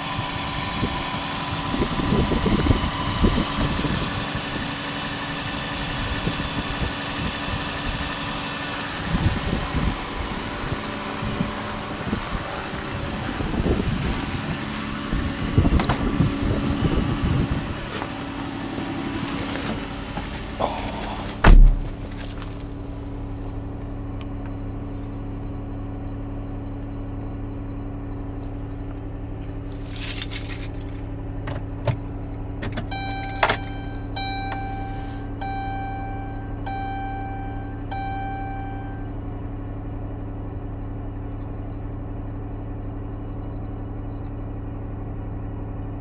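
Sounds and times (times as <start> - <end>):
car engine idling hum: 0.0 - 46.0
car door thumping shut: 21.4 - 22.0
dashboard chime beeping: 32.9 - 39.1.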